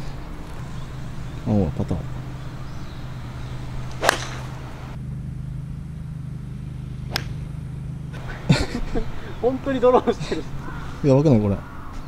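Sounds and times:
steady low hum: 0:00.0 - 0:12.0
putter striking golf ball: 0:03.8 - 0:04.9, 0:07.0 - 0:07.5.

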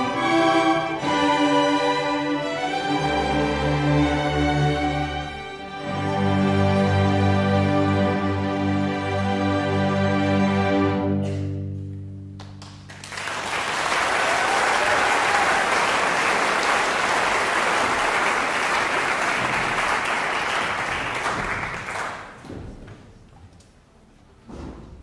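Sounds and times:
audience applauding: 0:12.4 - 0:22.4.

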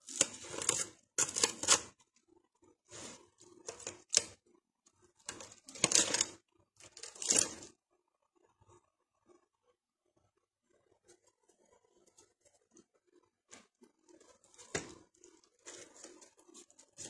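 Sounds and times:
aluminium foil crinkling: 0:00.0 - 0:01.9, 0:05.2 - 0:07.7.

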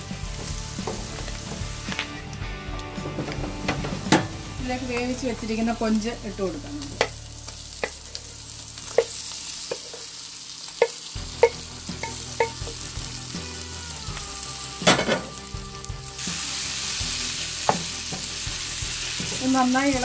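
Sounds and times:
food sizzling in a pan: 0:00.0 - 0:20.0
utensils knocking against pan: 0:03.0 - 0:04.4, 0:10.8 - 0:12.8, 0:14.8 - 0:15.3.

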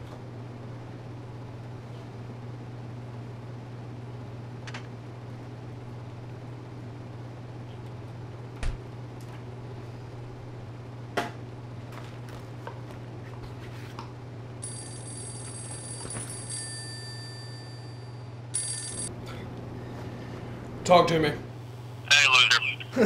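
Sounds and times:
phone ringtone: 0:14.6 - 0:19.1.

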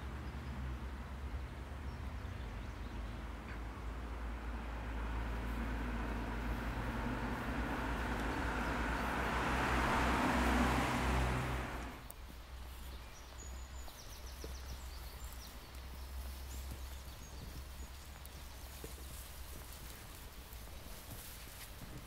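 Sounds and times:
rushing noise with low rumble: 0:03.6 - 0:12.0.

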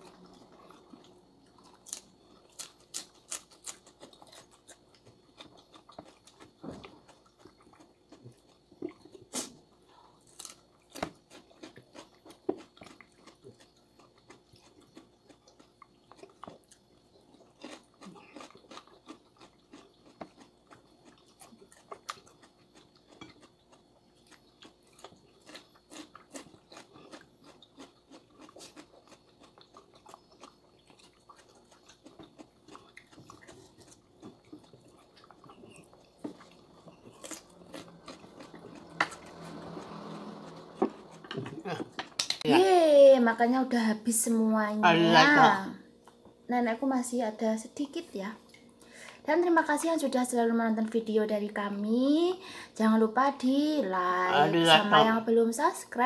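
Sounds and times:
chewing and crunching food: 0:00.0 - 0:42.5, 0:44.3 - 0:46.5.

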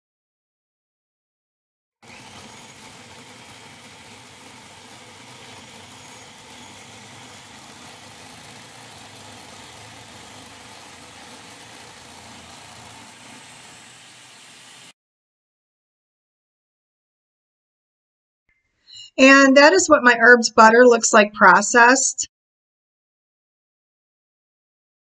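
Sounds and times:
food processor motor running: 0:02.0 - 0:14.9.

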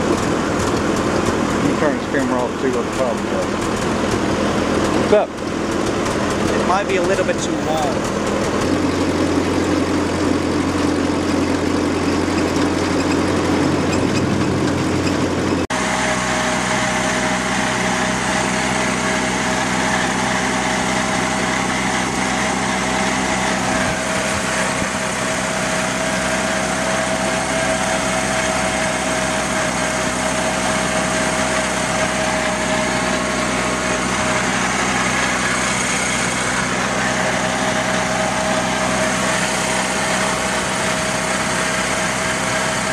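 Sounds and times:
tractor engine running: 0:00.0 - 0:42.9
steady high whine: 0:15.8 - 0:42.9.

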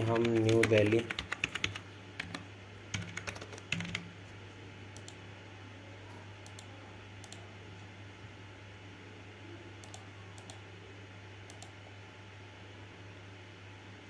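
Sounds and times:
keyboard typing: 0:00.0 - 0:04.1
faint low hum: 0:00.0 - 0:14.0.

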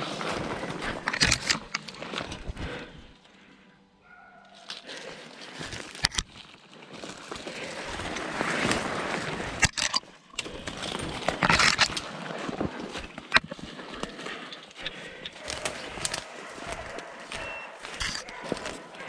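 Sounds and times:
sharp cracks of twigs: 0:00.8 - 0:02.8, 0:04.5 - 0:19.0
footsteps crunching dry leaves: 0:04.5 - 0:09.6, 0:12.0 - 0:19.0
branches swishing against clothing: 0:06.9 - 0:09.6, 0:12.0 - 0:19.0.

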